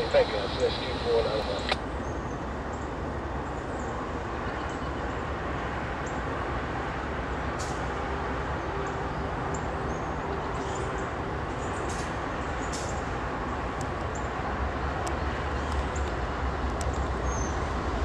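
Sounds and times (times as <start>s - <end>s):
diesel locomotive rumble: 0.0s - 1.8s
faint steady hum: 0.0s - 1.8s.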